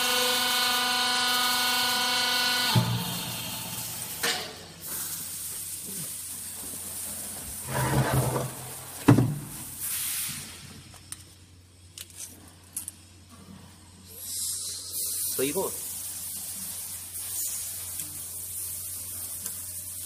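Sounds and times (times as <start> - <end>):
steel drum clanking and scraping: 7.6 - 9.0.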